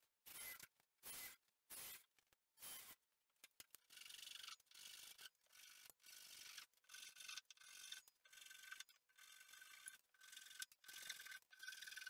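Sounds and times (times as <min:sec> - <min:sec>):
cordless drill burst: 0:02.6 - 0:03.0.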